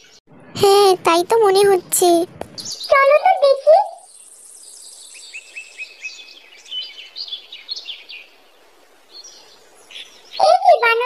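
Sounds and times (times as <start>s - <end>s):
small birds chirping: 2.4s - 11.0s
faint hiss: 4.1s - 10.9s.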